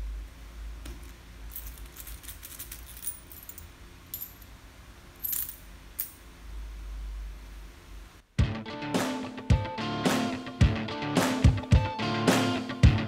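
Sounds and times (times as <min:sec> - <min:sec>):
coins clinking into plastic cup: 0:01.5 - 0:04.4, 0:05.2 - 0:06.2.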